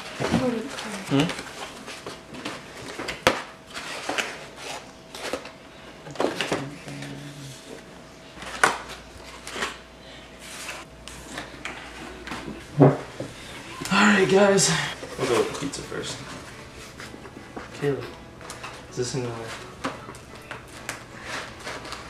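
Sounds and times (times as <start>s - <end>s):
paper rustling: 8.4s - 9.8s, 15.0s - 22.0s.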